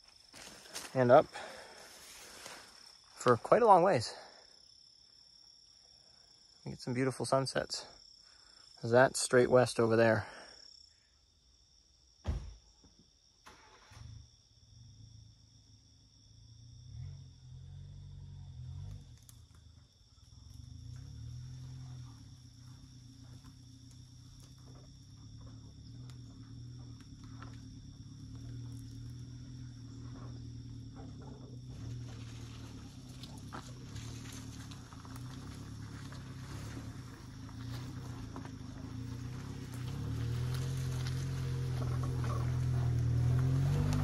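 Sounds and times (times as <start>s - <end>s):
small truck engine running: 16.9s - 44.0s
sticks crackling under tyres: 31.8s - 44.0s.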